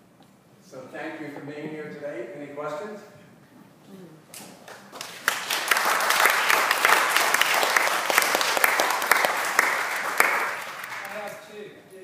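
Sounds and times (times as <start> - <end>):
audience applauding: 4.7 - 11.4.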